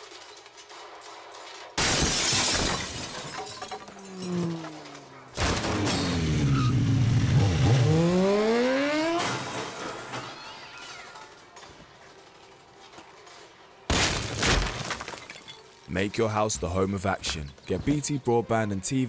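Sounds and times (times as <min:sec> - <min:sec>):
glass shattering crash: 0:00.0 - 0:11.7, 0:13.9 - 0:15.9
motorcycle engine revving: 0:05.5 - 0:09.8.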